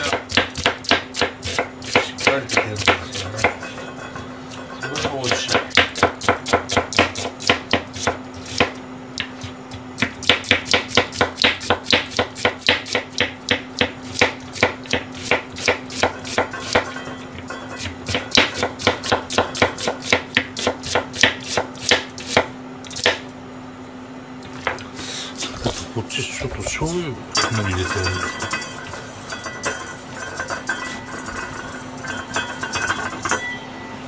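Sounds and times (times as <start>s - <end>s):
knife chopping onion on board: 0.0s - 3.7s, 4.5s - 17.0s, 17.7s - 23.3s
faint steady hum: 0.0s - 34.0s.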